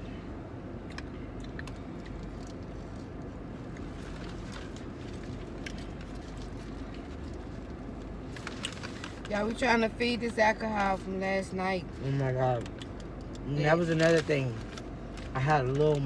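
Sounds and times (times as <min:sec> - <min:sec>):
car cabin hum: 0:00.0 - 0:16.0
people eating clicks and smacks: 0:00.8 - 0:07.8, 0:12.5 - 0:13.6.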